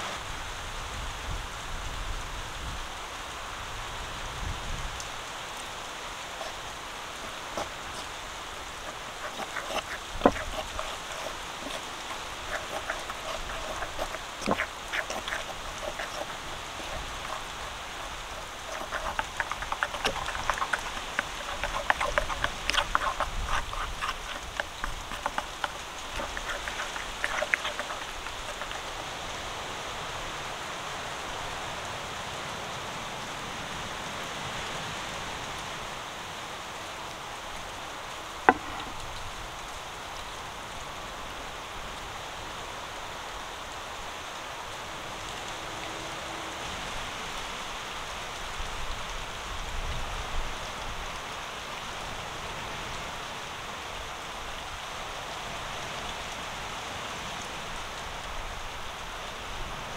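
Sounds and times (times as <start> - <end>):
steady background hiss: 0.0 - 20.2
spoon scraping paste in bowl: 6.4 - 6.6, 7.2 - 29.2.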